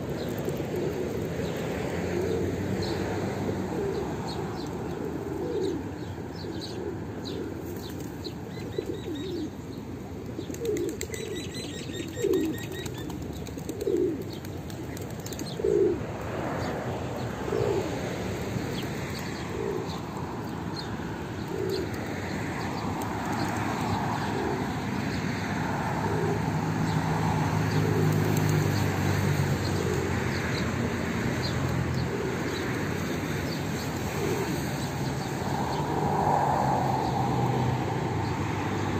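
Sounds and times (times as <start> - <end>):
pigeons cooing: 0.1 - 38.9.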